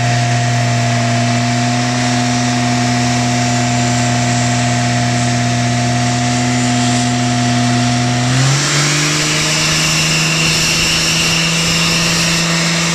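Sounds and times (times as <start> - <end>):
diesel engine revving hard: 0.0 - 12.9
high whistle: 9.1 - 12.9.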